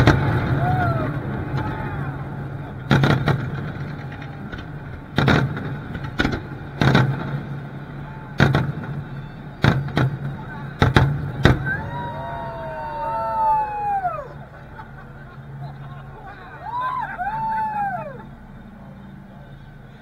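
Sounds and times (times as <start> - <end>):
firework shells booming: 0.0 - 11.8
low hum: 0.0 - 20.0.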